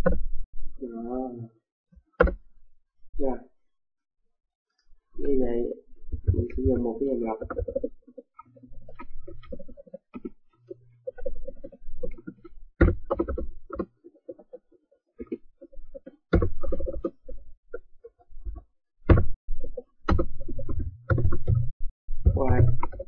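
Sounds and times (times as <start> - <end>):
keyboard and mouse clicking: 6.6 - 14.6.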